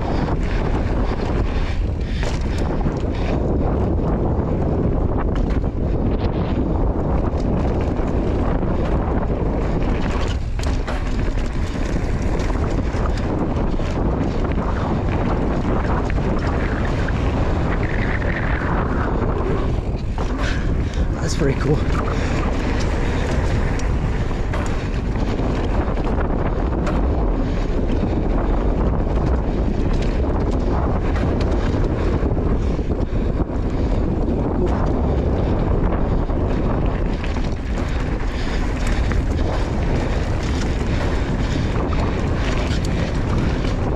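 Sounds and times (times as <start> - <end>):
bike rattling over bumps: 0.0 - 43.9
wind on microphone: 0.0 - 43.9.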